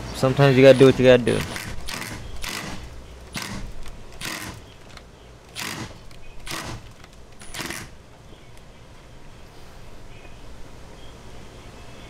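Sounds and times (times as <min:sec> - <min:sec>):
hand tools working rusted bolts: 0:00.7 - 0:08.0.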